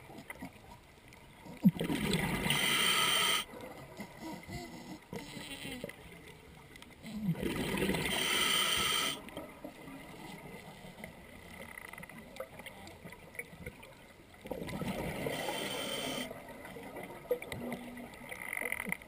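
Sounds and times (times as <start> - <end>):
diver breathing through regulator: 2.4 - 5.6, 8.0 - 9.2, 15.2 - 16.3.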